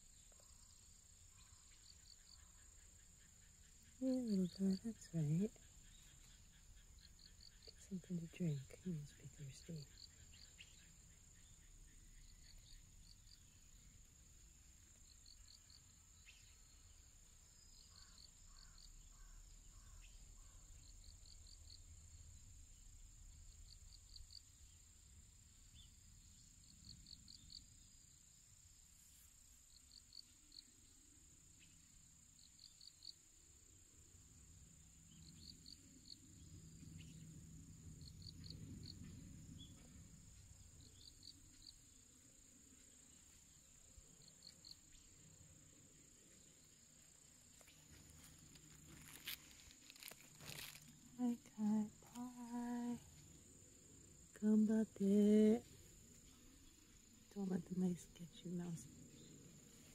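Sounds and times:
insect high-pitched drone: 0.0s - 28.4s, 29.7s - 59.9s
insect chirps: 0.0s - 59.9s.

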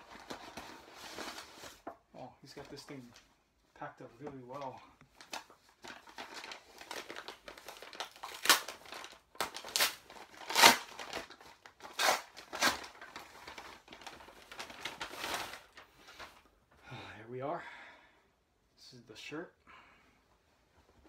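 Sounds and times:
plastic packaging crinkling: 4.5s - 16.5s.

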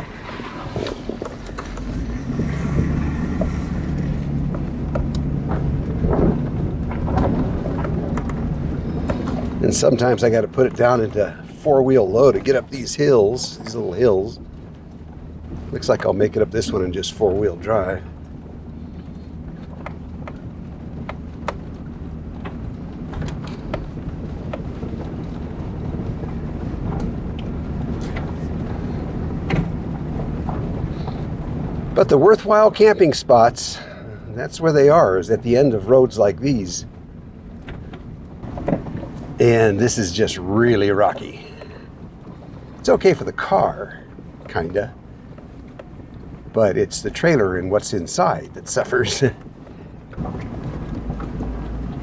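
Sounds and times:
knocks and clicks from bumps: 0.0s - 9.6s, 37.6s - 39.4s
sharp clicks and knocks: 0.0s - 10.9s, 18.2s - 32.6s, 37.6s - 39.4s, 49.4s - 52.0s
car engine running: 0.0s - 52.0s.

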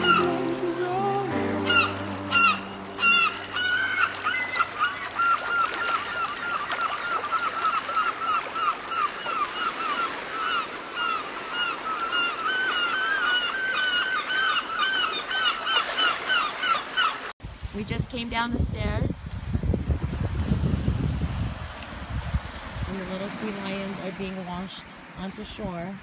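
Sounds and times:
chorus of animal calls: 0.0s - 0.8s, 1.6s - 17.3s.

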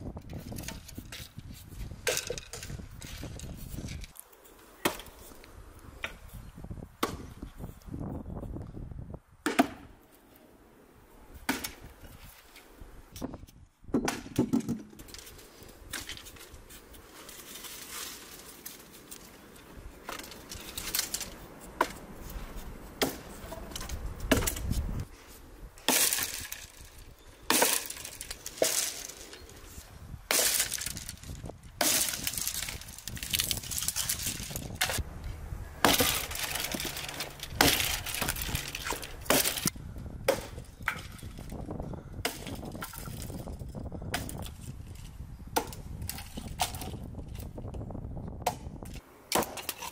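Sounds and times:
axe chopping branch on wood: 4.8s - 5.2s, 7.0s - 7.4s, 9.4s - 9.9s, 11.5s - 11.8s, 20.0s - 22.0s, 23.0s - 24.8s, 31.8s - 33.7s, 35.8s - 41.2s, 42.2s - 43.4s, 44.1s - 44.5s, 45.6s - 46.9s, 48.4s - 49.9s.

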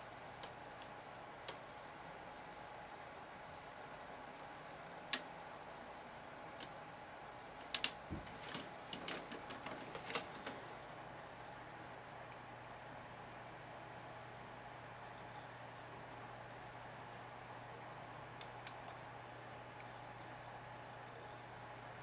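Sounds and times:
laptop clicking: 7.6s - 10.6s.

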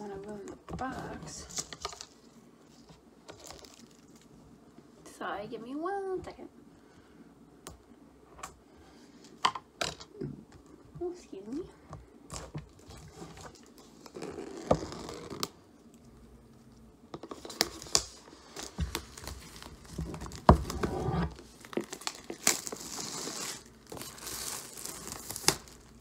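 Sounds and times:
plastic shrink-wrap tearing and crinkling: 0.9s - 4.3s, 12.4s - 16.0s, 17.2s - 26.0s.

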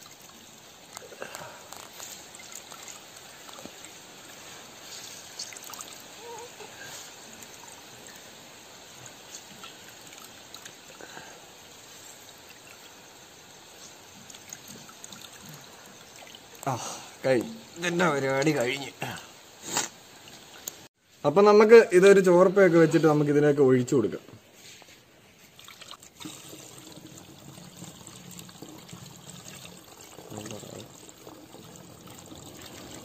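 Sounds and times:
liquid trickling through a strainer: 0.0s - 16.7s, 25.5s - 33.0s.

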